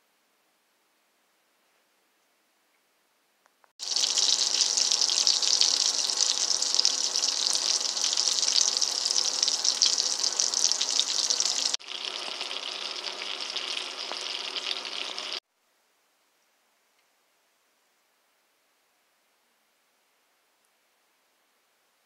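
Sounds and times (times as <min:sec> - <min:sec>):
sausages sizzling in a frying pan: 0:03.8 - 0:15.4.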